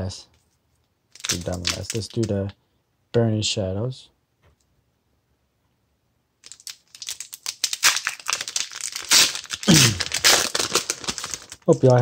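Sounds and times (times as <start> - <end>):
foil pack tearing and crinkling: 1.2 - 2.1, 6.4 - 12.0.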